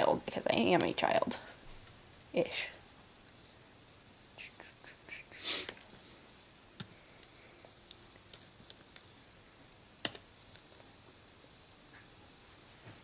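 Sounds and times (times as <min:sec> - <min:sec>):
laptop keyboard keystrokes and clicks: 0:06.8 - 0:07.3, 0:08.2 - 0:09.2, 0:10.0 - 0:10.3.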